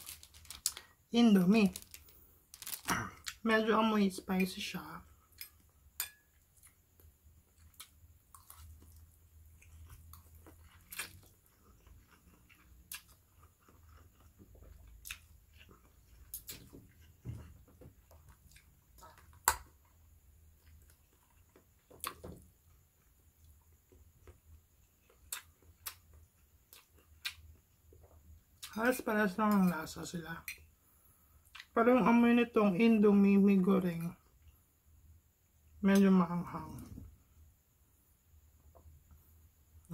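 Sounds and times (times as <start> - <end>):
person chewing and slurping noodles: 7.6 - 18.8.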